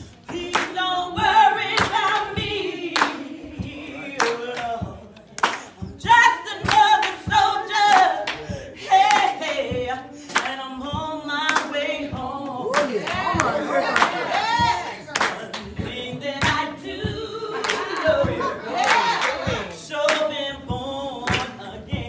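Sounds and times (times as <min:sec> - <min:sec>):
people singing together: 0:00.0 - 0:22.0
hand claps: 0:00.3 - 0:00.8, 0:01.7 - 0:03.3, 0:04.2 - 0:05.9, 0:06.6 - 0:09.5, 0:10.3 - 0:10.6, 0:12.7 - 0:15.8, 0:16.4 - 0:16.6, 0:17.6 - 0:20.4, 0:21.2 - 0:21.6.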